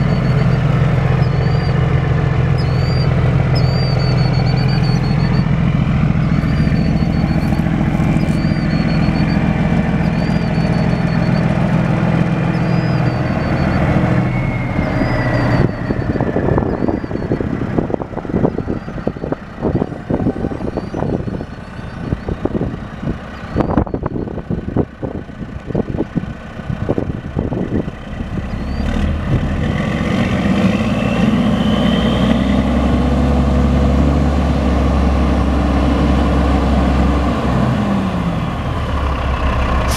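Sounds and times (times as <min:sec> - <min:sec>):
truck diesel engine idling: 0:00.0 - 0:29.8, 0:32.6 - 0:39.9
wind buffeting microphone: 0:14.6 - 0:29.8.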